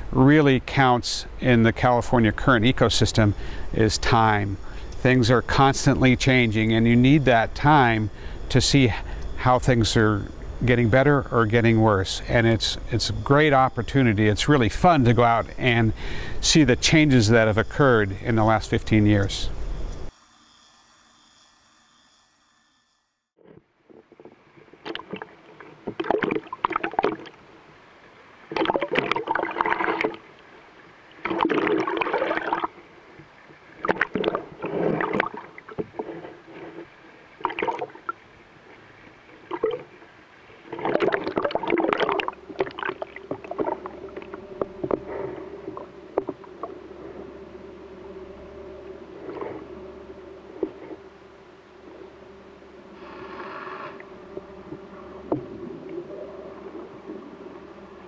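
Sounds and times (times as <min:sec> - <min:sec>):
steady low hum: 0:00.0 - 0:58.0
seawater sloshing and gurgling: 0:23.9 - 0:27.4, 0:28.4 - 0:47.3, 0:49.1 - 0:49.7.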